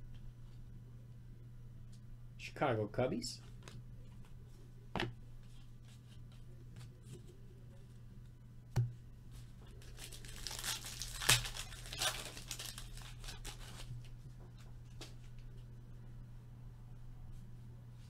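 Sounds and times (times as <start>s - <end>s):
low steady hum: 0.0s - 18.0s
wrapper tearing and crinkling: 9.7s - 13.9s.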